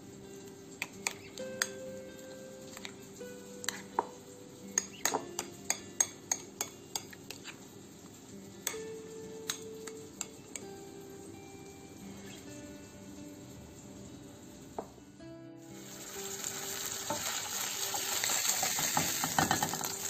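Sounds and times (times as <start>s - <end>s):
background music with held tones: 0.0s - 20.0s
metal spoon clinking against glass bowl: 4.8s - 7.4s.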